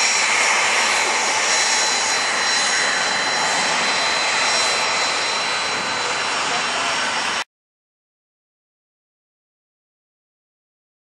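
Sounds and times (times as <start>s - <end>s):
jet engines running: 0.0s - 7.5s.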